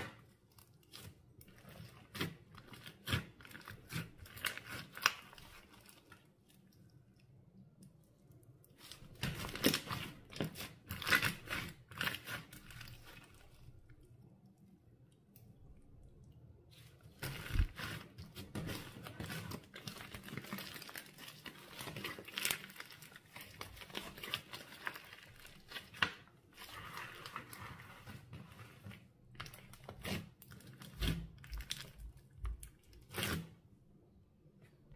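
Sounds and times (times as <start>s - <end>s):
slime squishing with crackling pops: 0.0s - 7.4s, 8.7s - 14.0s.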